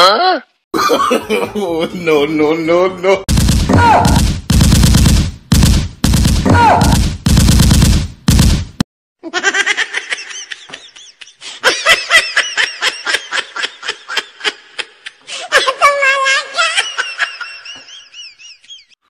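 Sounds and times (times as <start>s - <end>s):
laughter: 0.8s - 2.1s, 9.2s - 19.0s
machine-gun sound effect: 3.3s - 8.8s.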